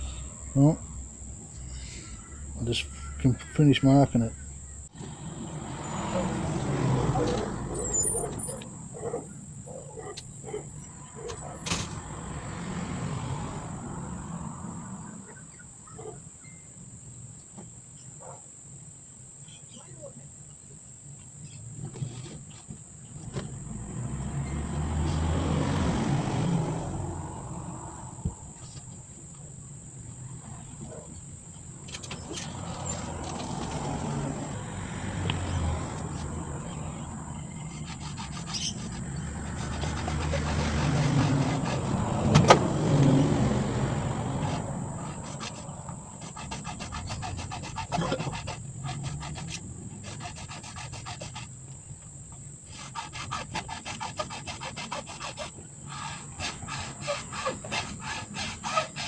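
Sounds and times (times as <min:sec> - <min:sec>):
hacksaw cutting plastic pipe: 0:37.6 - 0:42.6, 0:44.4 - 0:51.5, 0:52.7 - 0:59.0.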